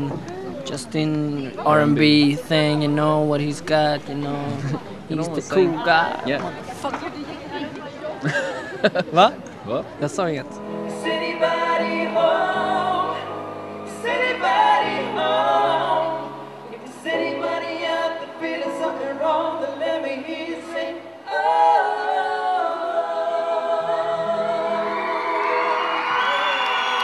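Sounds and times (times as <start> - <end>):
keyboard accompaniment: 9.9 - 27.0
male vocal trio singing: 10.8 - 25.2.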